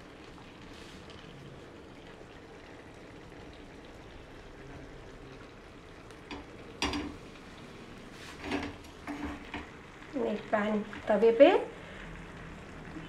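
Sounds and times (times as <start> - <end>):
faint steady background noise: 0.0 - 13.0
bread sizzling on hot griddle: 6.3 - 12.8.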